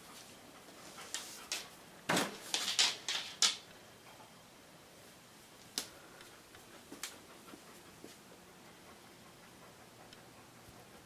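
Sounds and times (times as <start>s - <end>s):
dog panting: 0.0s - 1.8s, 6.0s - 11.0s.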